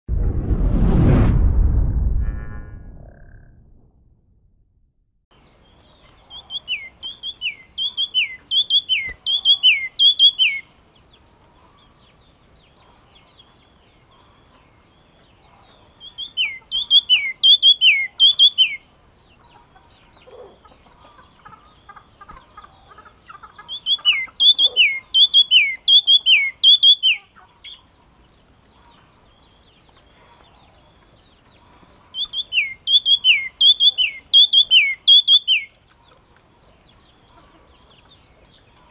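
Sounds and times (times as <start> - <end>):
bird singing descending notes: 6.5 - 10.7, 32.2 - 35.7.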